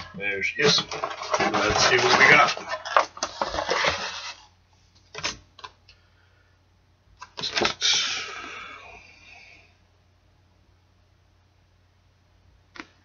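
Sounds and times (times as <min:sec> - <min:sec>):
paper rustling: 0:00.0 - 0:04.5.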